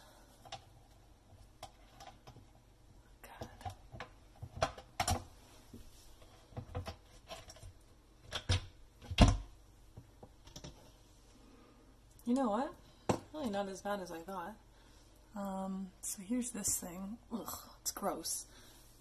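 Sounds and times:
plastic parts clicking and knocking: 0:03.4 - 0:05.3, 0:06.5 - 0:10.8.

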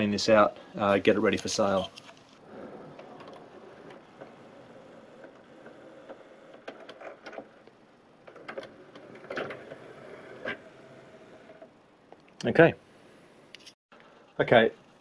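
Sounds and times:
cd drawer mechanism running: 0:02.5 - 0:11.7.

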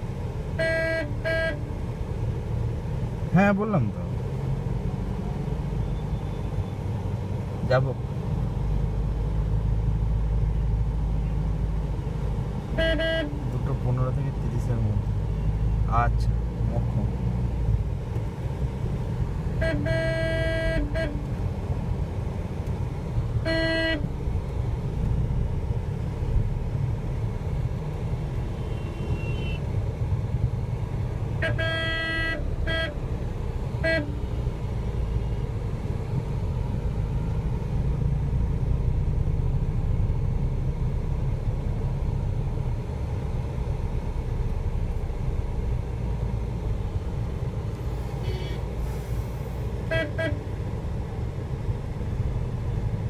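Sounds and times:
vehicle rumbling: 0:00.0 - 0:53.0
vehicle horn toots: 0:00.6 - 0:01.7, 0:12.8 - 0:13.4, 0:19.6 - 0:21.3, 0:23.4 - 0:24.2, 0:28.6 - 0:29.6, 0:31.4 - 0:33.0, 0:33.8 - 0:34.3, 0:48.2 - 0:48.7, 0:49.8 - 0:50.5.

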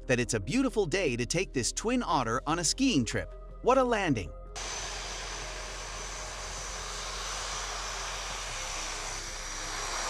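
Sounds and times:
turboprop plane engines: 0:04.6 - 0:10.0.

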